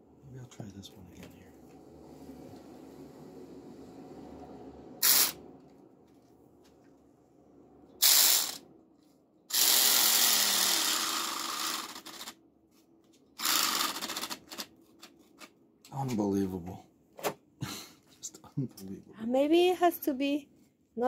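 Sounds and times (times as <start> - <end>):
small saw buzzing: 5.0 - 5.4, 8.0 - 8.6, 9.5 - 12.4, 13.4 - 14.7.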